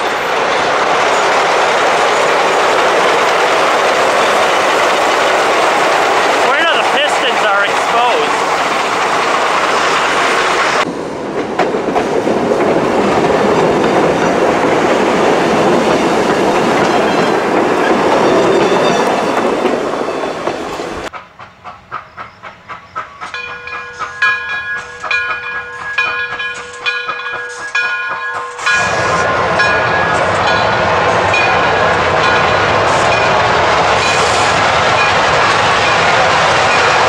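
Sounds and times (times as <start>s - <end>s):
steam locomotive chuffing: 0.0s - 37.0s
train wheels clattering on rails: 0.0s - 37.0s.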